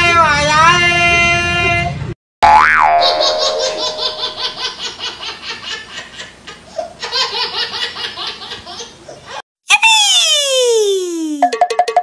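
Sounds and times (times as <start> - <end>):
cartoon laughter: 3.0 - 11.5.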